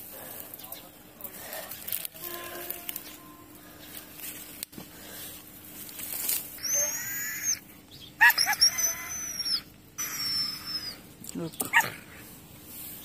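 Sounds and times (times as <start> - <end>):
dog whining: 6.6 - 7.6, 8.2 - 11.0
dog yelping: 6.6 - 7.6, 8.2 - 11.0, 11.7 - 12.0.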